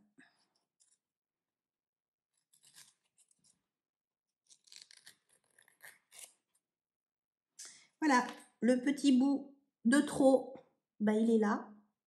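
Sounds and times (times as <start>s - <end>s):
nail file scratching: 2.4s - 3.6s, 4.5s - 6.5s.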